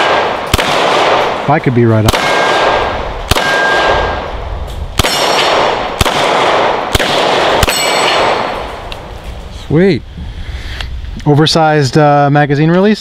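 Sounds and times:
pistol shots with echo: 0.0 - 8.8
steel targets ringing: 7.6 - 8.7.

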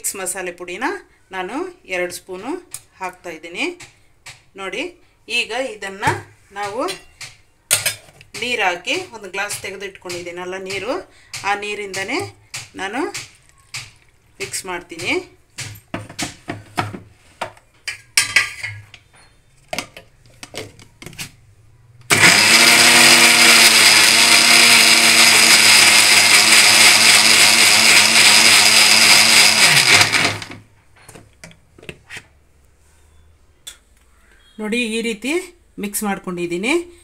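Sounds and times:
mixer grinder motor running: 22.1 - 30.6.

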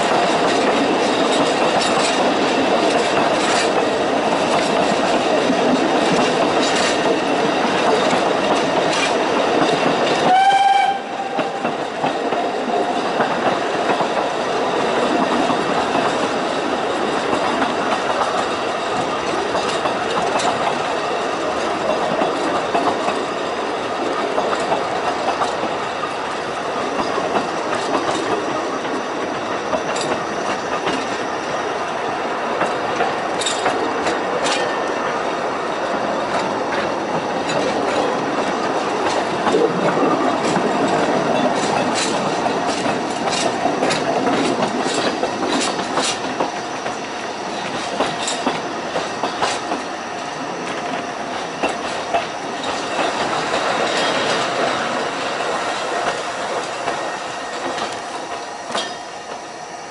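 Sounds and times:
wheels clicking over rail joints: 0.0 - 31.2, 32.5 - 59.4
train rumble: 0.0 - 59.9
steam locomotive whistle: 10.2 - 11.7.

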